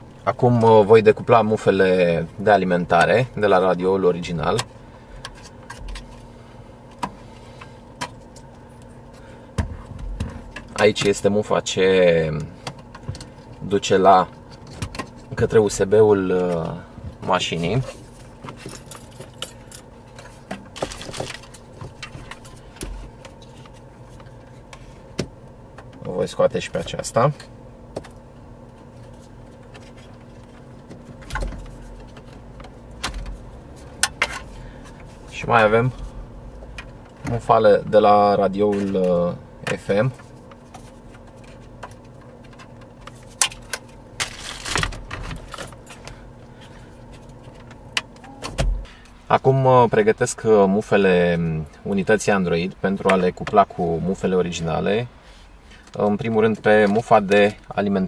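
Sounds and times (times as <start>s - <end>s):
cables and plastic rattling: 12.1s - 28.2s, 28.8s - 49.2s, 55.7s - 58.0s
plastic scraping rustle: 44.2s - 45.5s.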